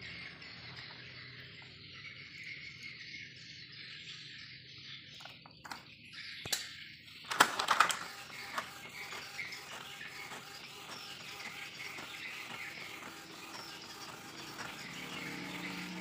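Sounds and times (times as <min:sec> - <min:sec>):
clicks: 0:07.3 - 0:10.4
printer clattering: 0:07.3 - 0:16.0.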